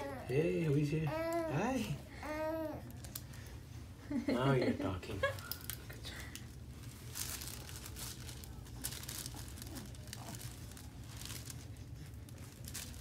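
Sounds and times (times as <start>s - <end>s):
steady low hum: 0.0s - 13.0s
paper liner crinkling: 6.6s - 13.0s.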